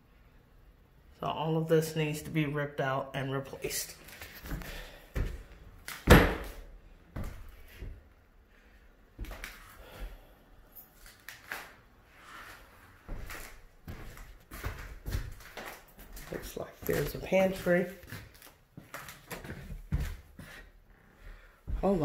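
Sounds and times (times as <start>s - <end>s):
metal cabinet doors opening and shutting: 6.0s - 6.6s
cabinet door bang: 6.1s - 6.6s.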